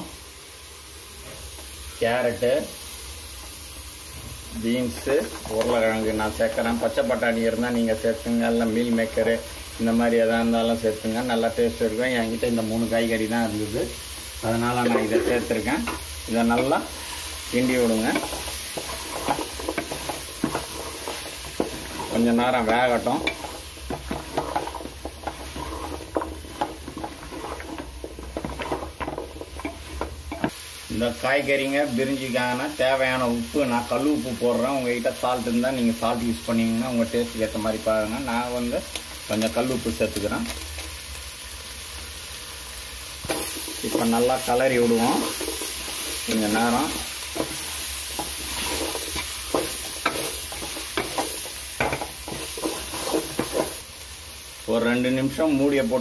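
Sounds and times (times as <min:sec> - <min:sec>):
vegetables sizzling: 0:00.0 - 0:56.0
spatula scraping metal pot: 0:14.8 - 0:30.5, 0:44.9 - 0:53.8.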